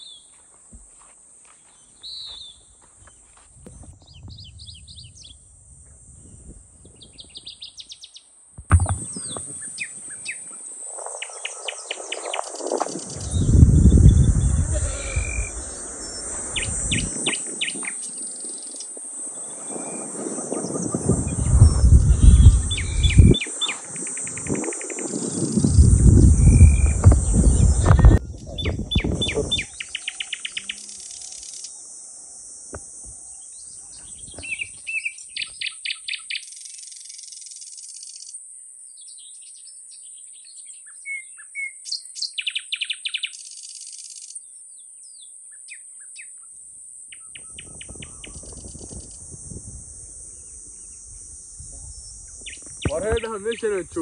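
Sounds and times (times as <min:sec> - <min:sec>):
high insect buzz: 0:00.0 - 0:54.0
birds chirping trills: 0:07.0 - 0:32.0, 0:51.9 - 0:54.0.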